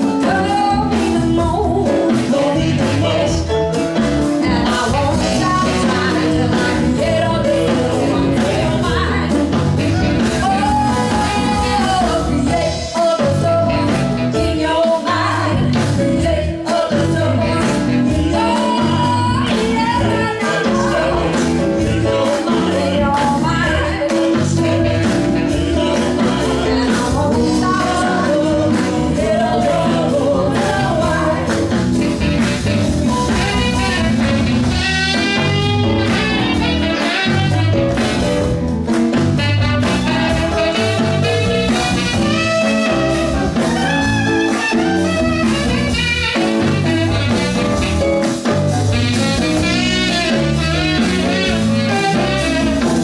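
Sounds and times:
women singing: 0.0s - 3.6s, 4.3s - 31.9s
live band playing: 0.0s - 53.0s
saxophone: 0.0s - 53.0s.

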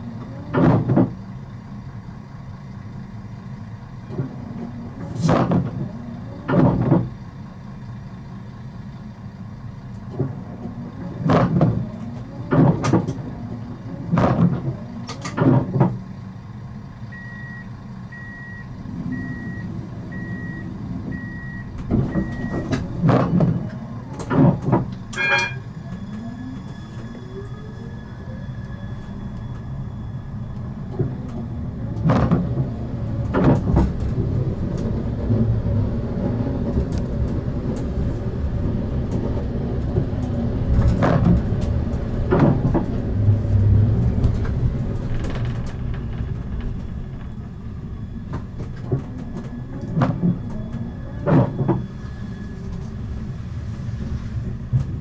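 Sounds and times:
steady low rumble: 0.0s - 55.0s
tram drive whining: 0.0s - 55.0s
high warning beeps: 17.1s - 22.7s, 25.1s - 30.4s
sharp clunk: 24.2s - 25.7s.

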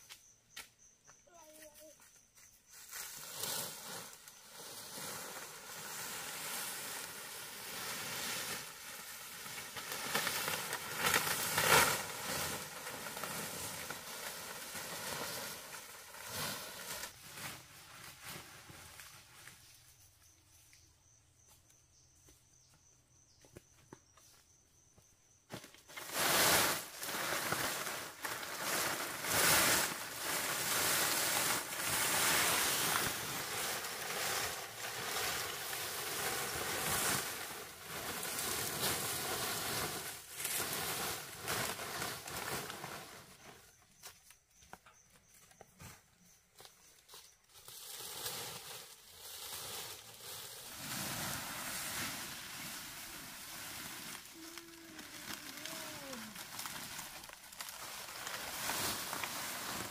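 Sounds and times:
dry palm fronds rustling: 2.7s - 20.0s, 25.6s - 44.4s, 46.5s - 59.9s.

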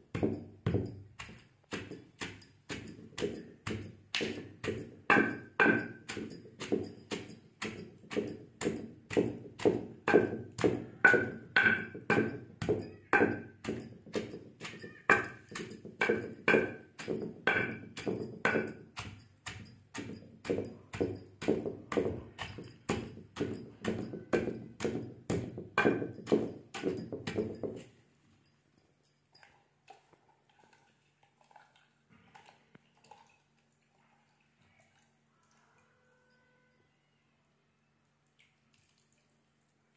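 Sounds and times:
pestle pounding in stone mortar: 0.0s - 27.9s.

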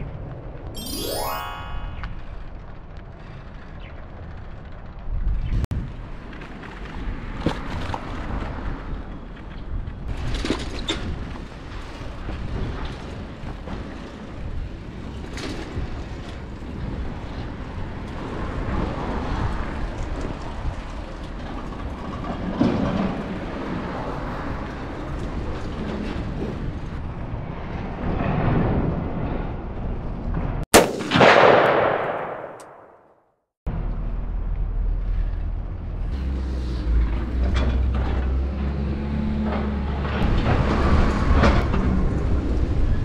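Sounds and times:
impact sound effect: 0.8s - 2.4s
sharp click: 32.3s - 32.8s.

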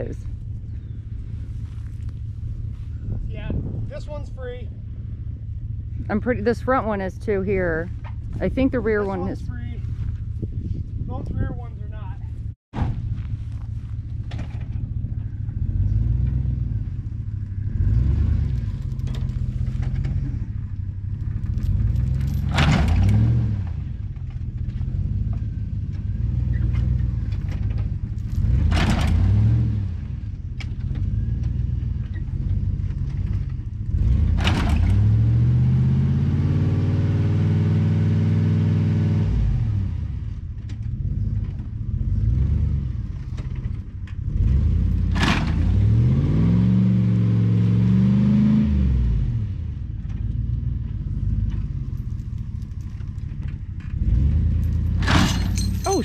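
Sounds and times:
engine revving under load: 12.8s - 52.0s, 53.6s - 56.0s.

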